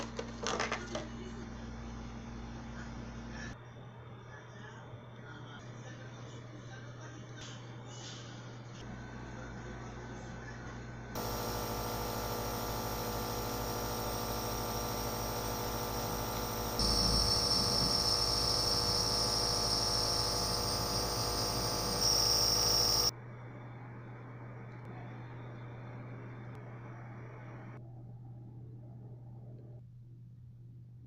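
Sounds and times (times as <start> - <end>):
compressor buzzing hum: 11.0 - 24.7.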